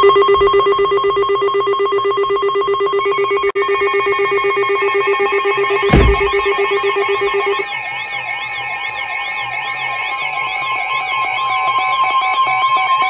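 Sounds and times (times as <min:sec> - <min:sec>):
thump: 0:05.9 - 0:06.5.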